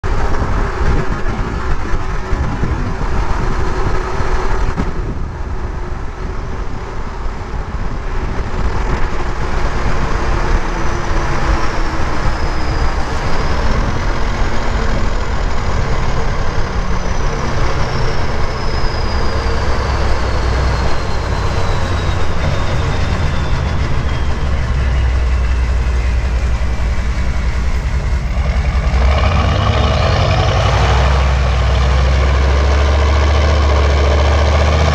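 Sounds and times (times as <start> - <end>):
deep diesel engine rumble: 0.0 - 34.9
high turbocharger whistle: 10.4 - 34.9.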